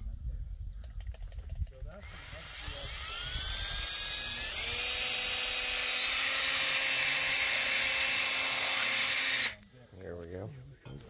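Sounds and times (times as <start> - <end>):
cordless drill motor whine: 2.0 - 9.6
drill bit hissing through metal: 2.0 - 9.6.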